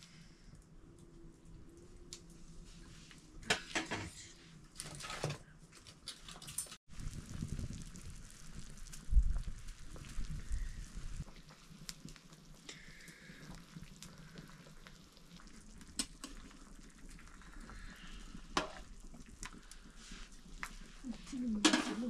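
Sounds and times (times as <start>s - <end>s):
meat bubbling and sizzling: 5.9s - 22.0s.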